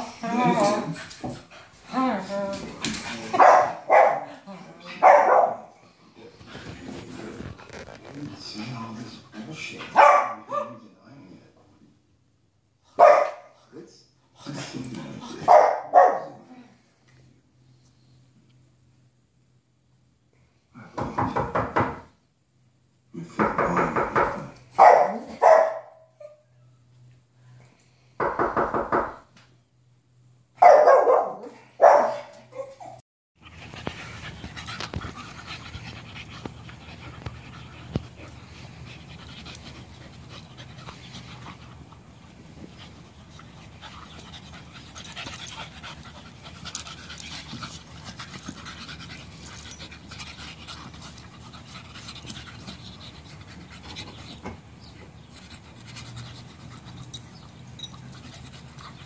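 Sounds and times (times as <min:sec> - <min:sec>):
small dog barking: 0:03.4 - 0:04.3, 0:05.0 - 0:05.7, 0:10.0 - 0:10.8, 0:13.0 - 0:13.5, 0:15.4 - 0:16.4, 0:24.8 - 0:26.0, 0:30.6 - 0:32.3
dogs panting: 0:33.4 - 0:59.0.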